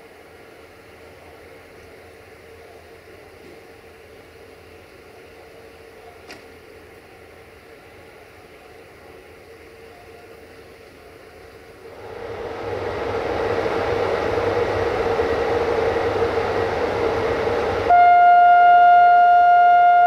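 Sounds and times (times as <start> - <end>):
train rushing: 0.0 - 19.4
locomotive horn blast: 17.9 - 20.0.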